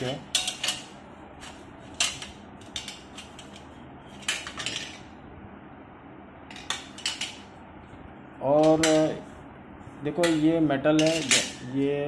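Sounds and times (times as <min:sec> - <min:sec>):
metal clinking against metal: 0:10.2 - 0:11.7.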